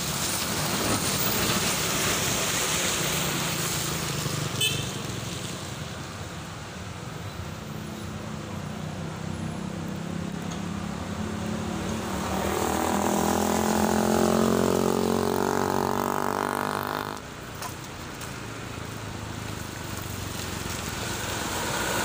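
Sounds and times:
vehicle driving past: 8.9 - 17.2, 19.8 - 22.0.

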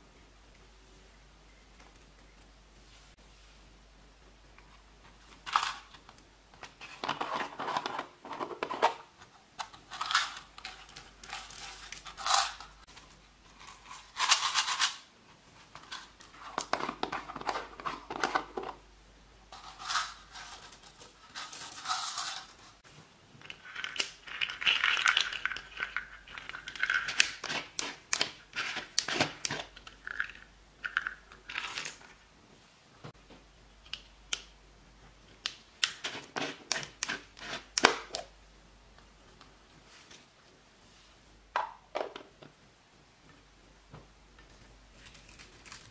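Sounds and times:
glitter rustling and rattling: 5.2 - 6.1, 9.6 - 17.6, 19.5 - 22.8, 23.4 - 32.2.

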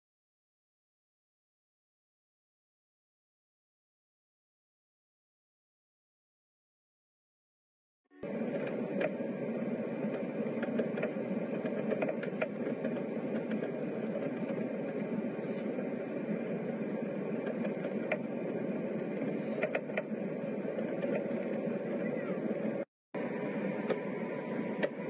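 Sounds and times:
jet engines rumbling in cabin: 8.2 - 25.0.

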